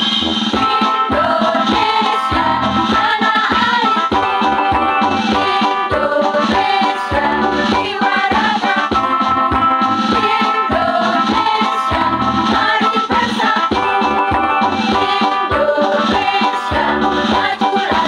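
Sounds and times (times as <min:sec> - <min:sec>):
instrumental accompaniment: 0:00.0 - 0:18.0
steady drum beat: 0:00.0 - 0:18.0
women's choir singing: 0:01.1 - 0:04.4, 0:05.3 - 0:09.0, 0:10.2 - 0:14.1, 0:14.9 - 0:18.0.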